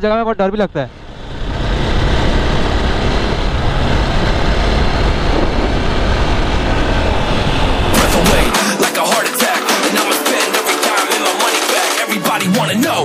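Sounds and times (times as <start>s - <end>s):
wind rushing over microphone: 0.6s - 8.6s
motorcycle engine at speed: 0.8s - 8.6s
hip-hop beat: 7.9s - 13.0s.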